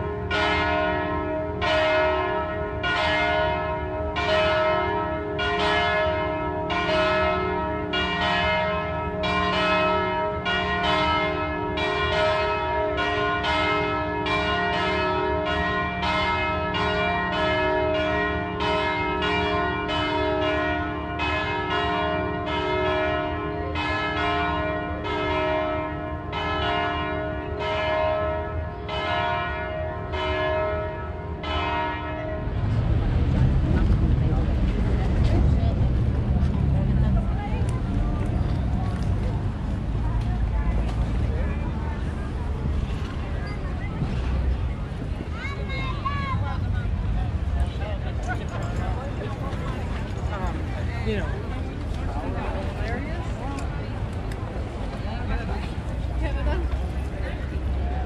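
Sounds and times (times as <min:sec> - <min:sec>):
church bells ringing: 0:00.0 - 0:36.6.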